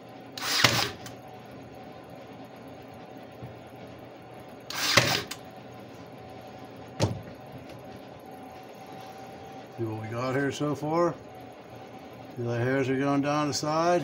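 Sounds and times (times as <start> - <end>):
nail gun firing: 0.4 - 1.1, 4.7 - 5.4.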